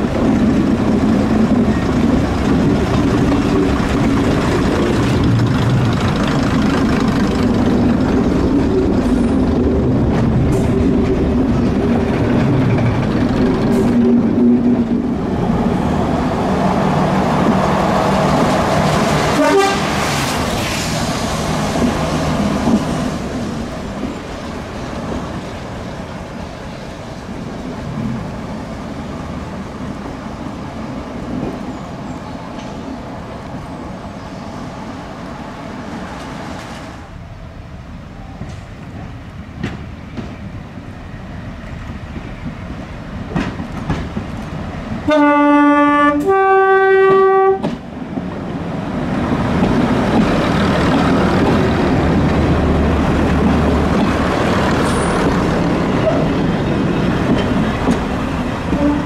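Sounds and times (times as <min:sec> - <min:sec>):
diesel railcar engines running: 0:00.0 - 0:59.0
train horn: 0:19.3 - 0:20.1, 0:45.0 - 0:47.8, 0:58.7 - 0:59.0.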